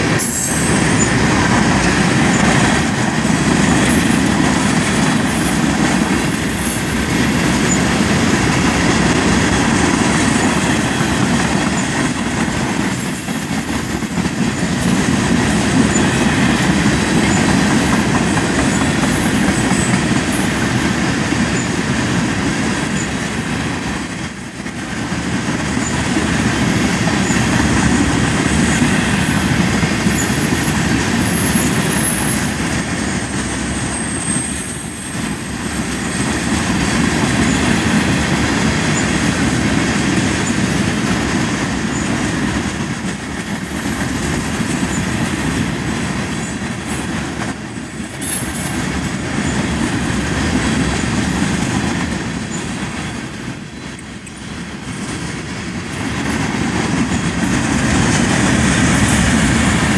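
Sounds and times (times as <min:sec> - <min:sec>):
train wheels rumbling on rails: 0:00.0 - 0:59.9
high-pitched wheel squeal: 0:03.1 - 0:08.8, 0:09.5 - 0:16.0, 0:30.1 - 0:37.6.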